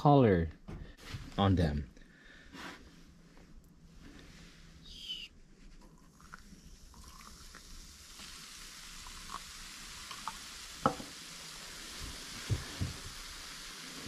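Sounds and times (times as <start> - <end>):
foam fizzing hiss: 6.1 - 14.0
light ticks from pouring cup: 10.0 - 11.0.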